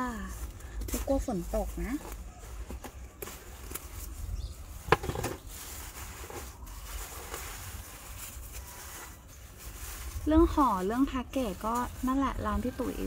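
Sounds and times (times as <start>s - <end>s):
packaging being unwrapped: 1.7s - 12.1s.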